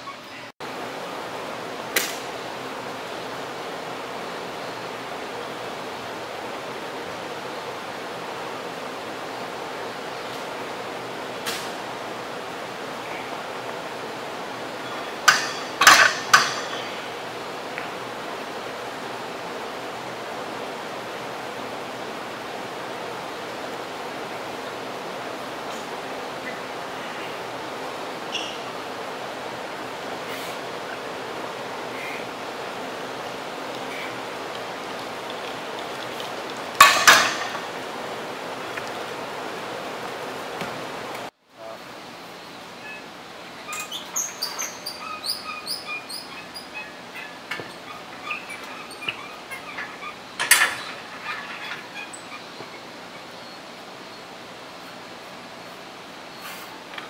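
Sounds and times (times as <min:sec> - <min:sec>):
gym room hiss: 0:00.0 - 0:57.0
barbell clanking on metal rack: 0:15.2 - 0:17.0, 0:36.8 - 0:37.7
metal gym equipment clanking: 0:15.2 - 0:17.0, 0:36.8 - 0:37.7, 0:48.2 - 0:52.1.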